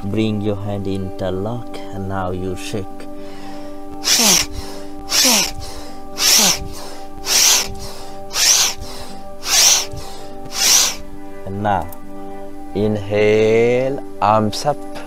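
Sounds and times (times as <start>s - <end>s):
background music drone: 0.0s - 15.0s
person breathing out forcefully: 3.2s - 10.5s.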